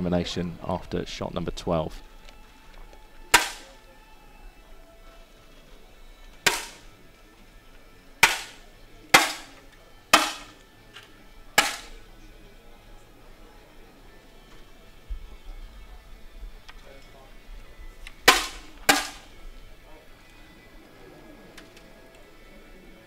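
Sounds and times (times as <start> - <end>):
air rifle pops: 3.3 - 3.8, 6.4 - 6.9, 8.2 - 8.6, 9.2 - 9.6, 10.2 - 10.6, 11.6 - 12.0, 18.0 - 19.3.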